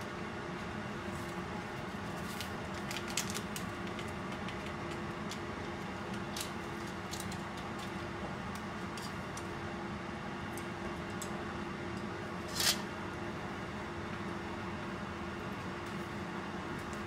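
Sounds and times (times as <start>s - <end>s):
mechanical hum: 0.0s - 17.0s
paper packet crinkling: 1.2s - 8.0s.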